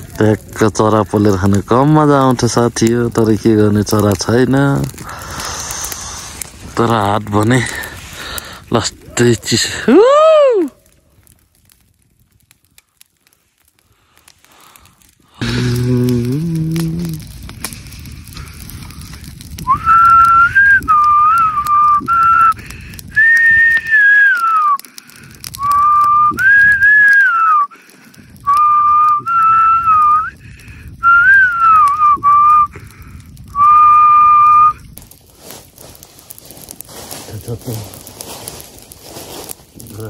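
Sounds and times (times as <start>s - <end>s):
crackling fire of dry leaves: 0.0s - 40.0s
person whistling a slow tune: 19.6s - 22.5s, 23.1s - 24.8s, 25.6s - 27.7s, 28.4s - 30.3s, 31.0s - 32.7s, 33.5s - 34.8s.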